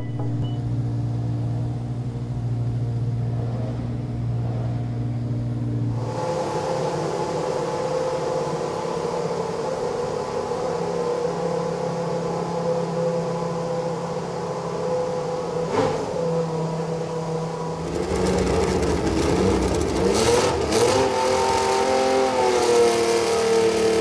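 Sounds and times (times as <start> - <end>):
racing car engine idling: 16.6 - 20.8.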